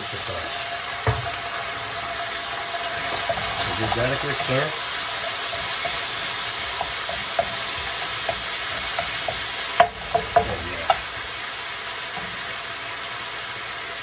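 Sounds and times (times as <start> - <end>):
food sizzling in oil: 0.0 - 14.0
spatula tapping pan: 1.0 - 1.5, 2.1 - 11.4.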